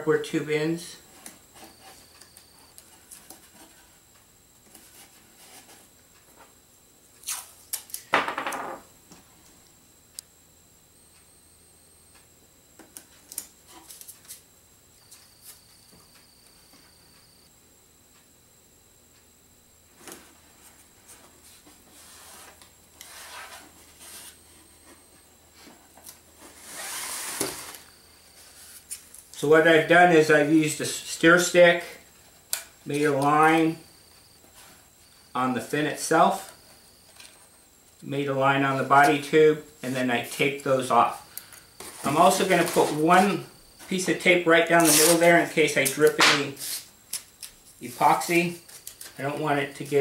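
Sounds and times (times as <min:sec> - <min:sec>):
tape ripping off roll: 0:07.2 - 0:08.1, 0:44.8 - 0:45.3.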